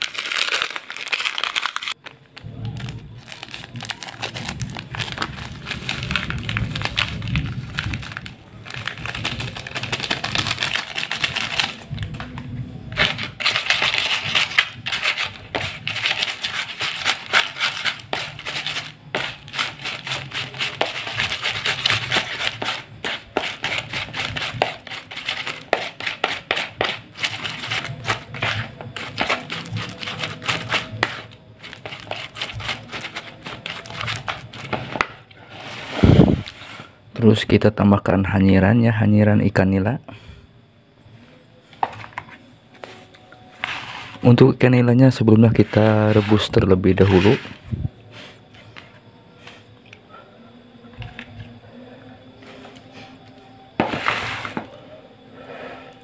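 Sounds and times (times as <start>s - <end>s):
plastic packet crinkling: 0.0s - 35.1s
crackers crunching: 0.0s - 36.6s
crumbs rubbed in plastic basin: 2.8s - 36.9s, 42.8s - 44.5s, 45.1s - 49.0s, 53.8s - 54.8s.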